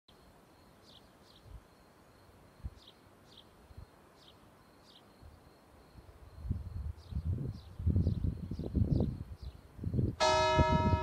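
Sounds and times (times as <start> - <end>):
small bird chirping: 0.1 - 5.2
faint steady high tone: 0.1 - 7.3.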